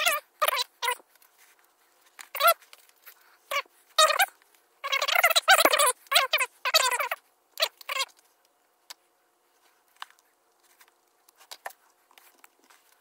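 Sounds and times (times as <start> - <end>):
short high squeaks: 2.3 - 2.6.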